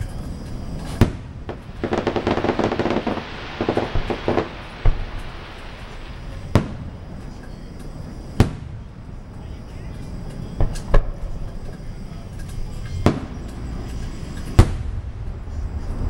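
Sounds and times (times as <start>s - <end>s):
firework crackling pops: 0.0s - 15.8s
firework bangs: 0.0s - 16.0s.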